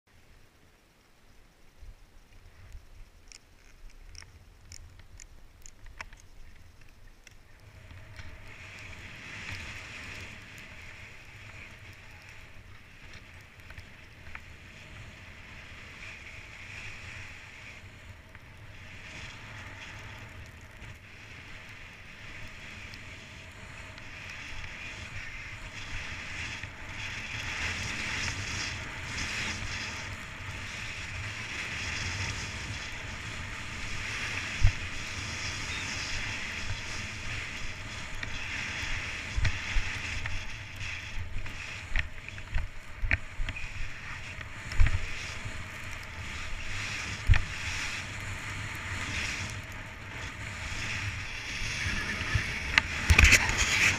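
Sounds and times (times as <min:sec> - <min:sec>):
light clicks: 0:02.3 - 0:08.9
wind buffeting microphone: 0:02.7 - 0:53.9
skis sliding on packed snow: 0:05.9 - 0:53.9.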